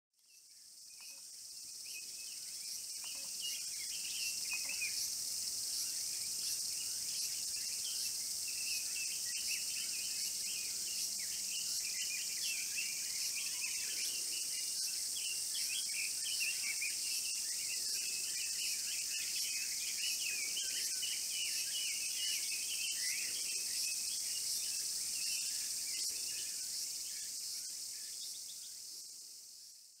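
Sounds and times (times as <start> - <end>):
high-pitched insect chorus: 0.2 - 30.0.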